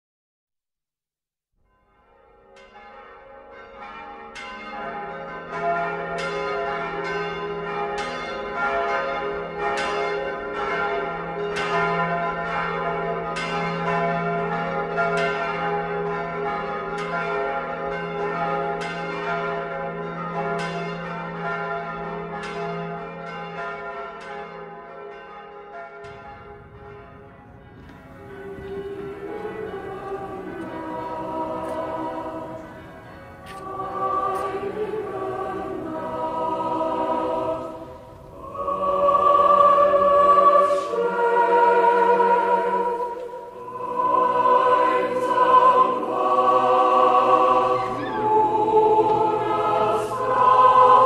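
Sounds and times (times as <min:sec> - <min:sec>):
church bells ringing: 0:01.7 - 0:51.0.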